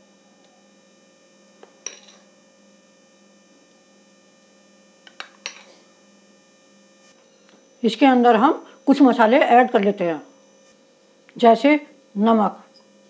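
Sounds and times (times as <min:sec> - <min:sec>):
faint electrical hum: 0:00.0 - 0:13.0
metal spoon clinking on glass bowl: 0:01.8 - 0:02.2.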